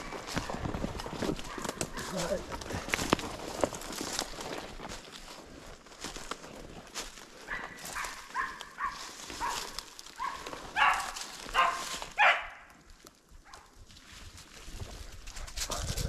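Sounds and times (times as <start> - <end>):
dry leaves rustling underfoot: 0.0 - 16.0
dog yelping barks: 1.4 - 2.2, 7.5 - 12.7.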